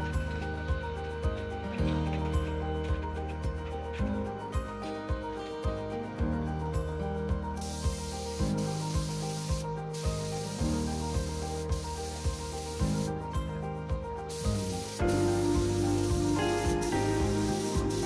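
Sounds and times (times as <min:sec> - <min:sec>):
background music with beat: 0:00.0 - 0:18.0
spray gun hissing: 0:07.6 - 0:13.1, 0:14.3 - 0:18.0.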